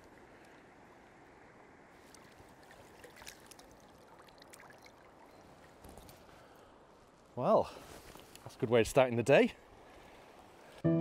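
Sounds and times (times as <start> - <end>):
small light splashes: 2.0 - 6.3.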